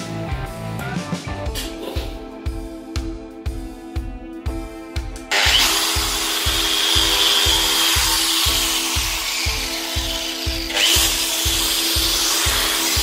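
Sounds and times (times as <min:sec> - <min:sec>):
angle grinder grinding metal: 0:05.3 - 0:13.0.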